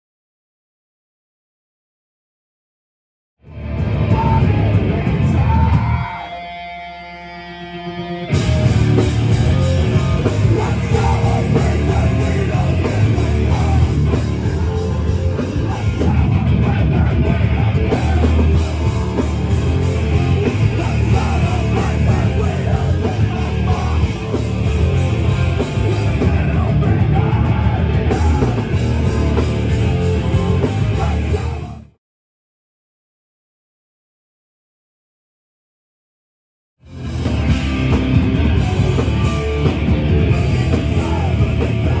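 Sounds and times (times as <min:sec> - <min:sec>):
punk band playing: 0:03.4 - 0:31.9, 0:36.8 - 0:42.0
shouted lead vocal: 0:03.8 - 0:07.1, 0:08.3 - 0:32.0, 0:37.3 - 0:42.0.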